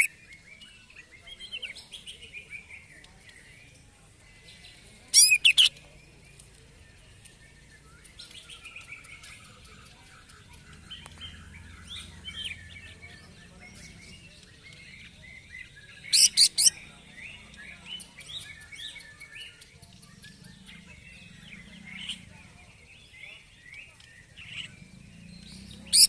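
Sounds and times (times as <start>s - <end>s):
bird singing chirps and trills: 0.0s - 26.0s
loud harsh bird notes: 4.5s - 5.8s, 7.5s - 26.0s.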